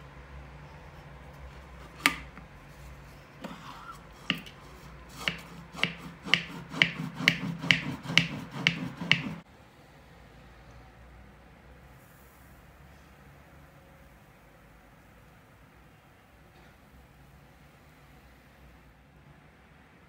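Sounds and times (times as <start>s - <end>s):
milk churning: 1.6s - 9.4s.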